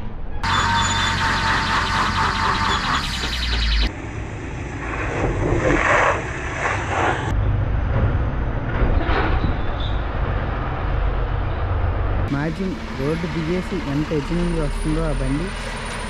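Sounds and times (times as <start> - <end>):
truck diesel engine under load: 11.9 - 16.0.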